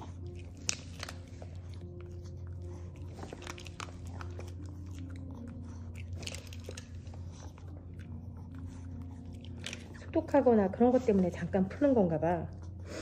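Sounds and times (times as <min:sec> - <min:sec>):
dog crunching dry kibble: 0:00.0 - 0:10.2.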